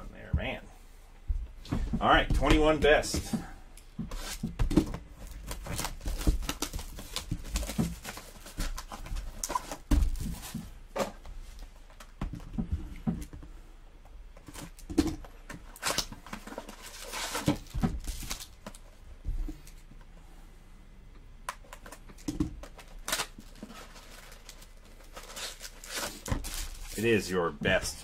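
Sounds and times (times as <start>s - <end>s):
foil packs rustling and tapping: 4.0s - 11.3s, 14.4s - 18.8s, 21.6s - 28.0s
plastic wrap crinkling and tearing: 5.2s - 10.5s, 15.7s - 18.8s, 22.6s - 27.3s.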